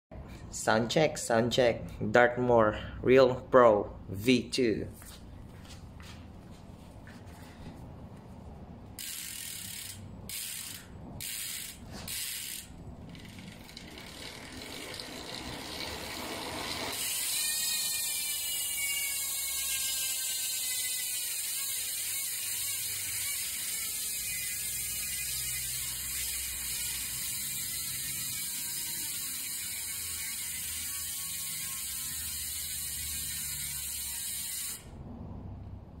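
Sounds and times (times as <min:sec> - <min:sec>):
bicycle hub pawl clicks: 0:09.0 - 0:34.9
freewheel ratchet buzz: 0:09.0 - 0:35.0.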